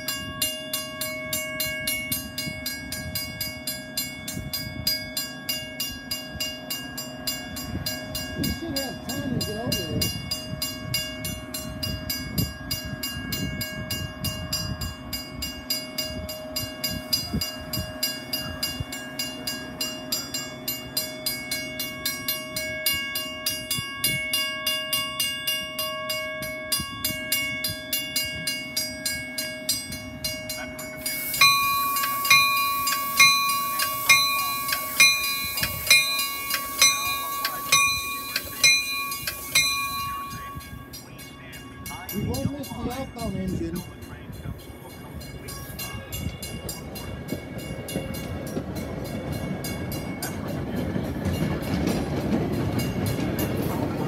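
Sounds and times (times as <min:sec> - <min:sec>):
railroad crossing bell ringing: 0:00.0 - 0:54.0
train coaches rumbling: 0:00.0 - 0:54.0.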